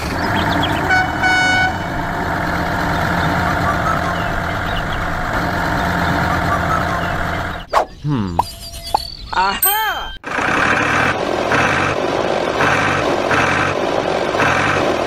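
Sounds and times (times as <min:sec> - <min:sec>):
truck engine running: 0:00.0 - 0:07.7, 0:10.2 - 0:15.0
truck horn toots: 0:00.4 - 0:02.2.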